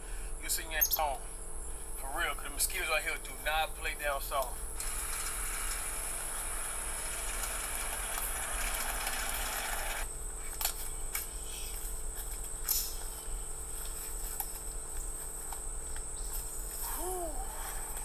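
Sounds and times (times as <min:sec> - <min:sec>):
insect chirring: 0:00.4 - 0:02.3.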